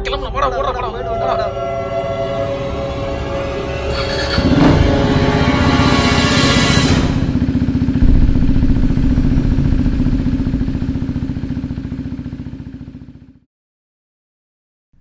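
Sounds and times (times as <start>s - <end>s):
motorcycle engine running: 3.9s - 13.5s.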